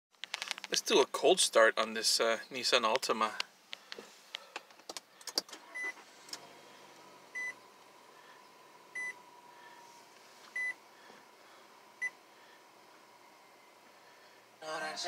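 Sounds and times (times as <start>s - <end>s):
car engine idling: 3.5s - 15.0s
ignition clicks: 4.6s - 8.1s
dashboard warning chime beeping: 5.7s - 6.0s, 7.3s - 7.6s, 8.9s - 9.4s, 10.5s - 10.8s, 12.0s - 12.2s.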